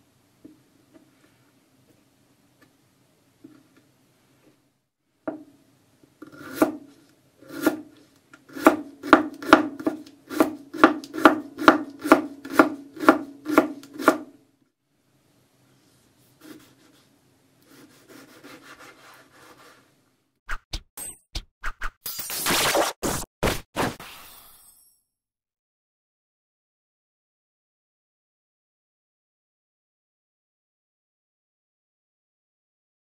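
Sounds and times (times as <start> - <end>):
knife chopping on wooden board: 6.3 - 6.9, 8.5 - 14.3
knife slicing through tomato: 6.3 - 14.3.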